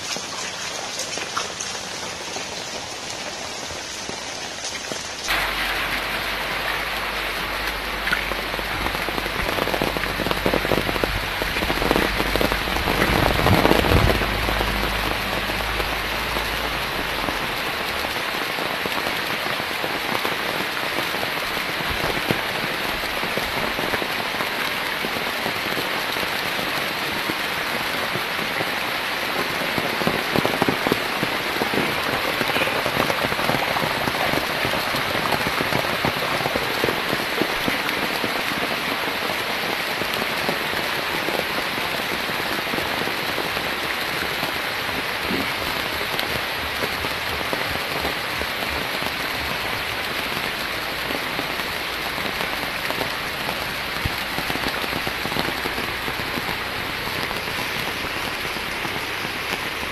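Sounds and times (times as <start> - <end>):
steady rain falling: 0.0 - 59.9
low rumble: 5.3 - 18.2.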